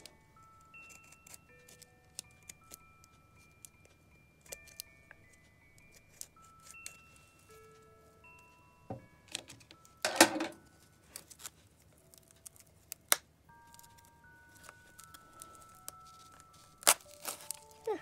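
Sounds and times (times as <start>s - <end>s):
soft background music: 0.0s - 18.0s
cardboard rustling and crinkling: 13.8s - 18.0s.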